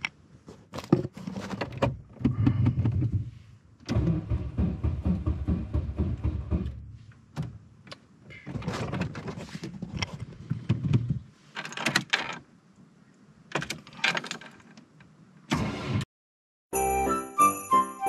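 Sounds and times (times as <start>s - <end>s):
starter motor cranking engine: 3.9s - 6.8s.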